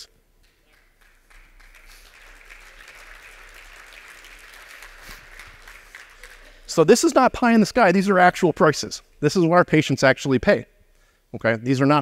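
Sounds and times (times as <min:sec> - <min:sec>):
audience applauding: 0:00.4 - 0:06.9.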